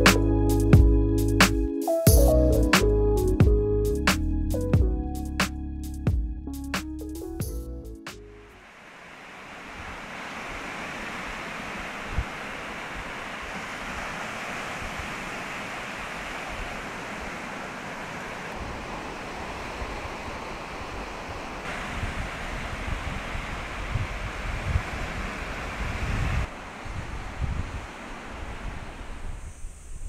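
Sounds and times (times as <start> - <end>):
surf breaking on beach: 8.6 - 29.8
wind rumbling on microphone: 9.5 - 30.0.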